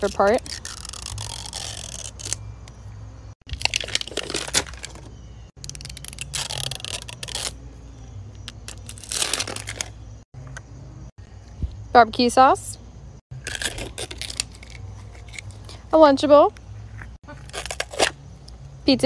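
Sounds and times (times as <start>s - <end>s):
plastic wrapping crinkling and tearing: 0.0s - 2.4s, 3.5s - 7.6s, 8.6s - 10.0s, 13.4s - 15.5s, 17.4s - 18.2s.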